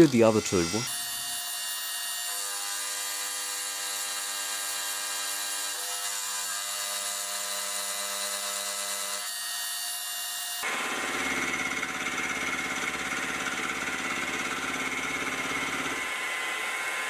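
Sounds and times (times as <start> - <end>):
milling cutting and coolant hiss: 0.0 - 1.5.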